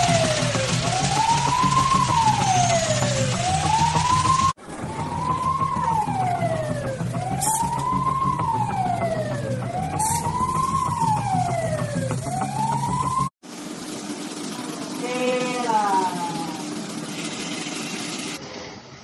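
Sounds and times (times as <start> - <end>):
fire engine siren wailing: 0.0 - 13.4.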